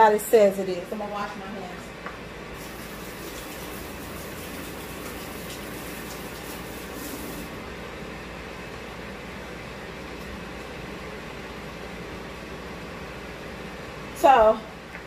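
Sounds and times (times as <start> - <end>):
low steady hum: 0.0 - 15.0
water running from a tap: 2.6 - 7.5.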